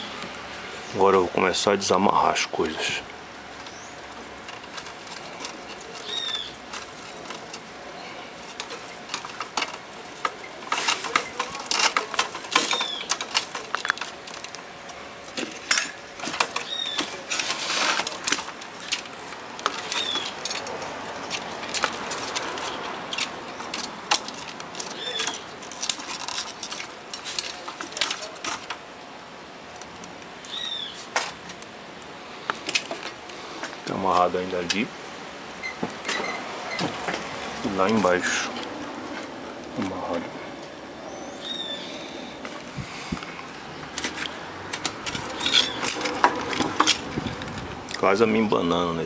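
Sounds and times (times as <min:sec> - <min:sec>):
hands handling cables and circuit boards: 0:03.6 - 0:28.9, 0:42.4 - 0:48.2.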